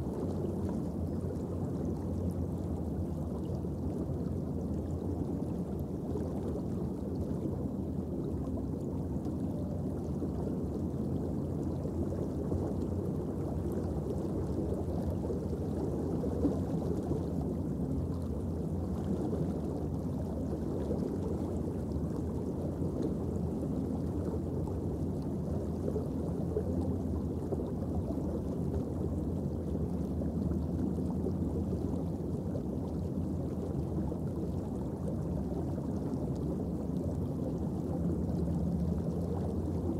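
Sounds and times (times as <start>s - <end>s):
muffled underwater ambient noise: 0.0s - 39.9s.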